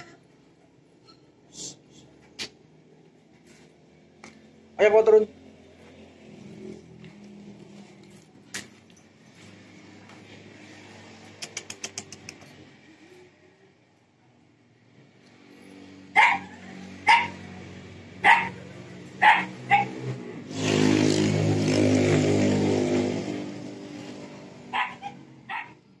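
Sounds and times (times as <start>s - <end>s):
passing vehicle engine: 0.0s - 26.0s
dog barking: 16.1s - 17.4s, 18.2s - 18.6s, 19.2s - 20.1s, 24.7s - 25.8s.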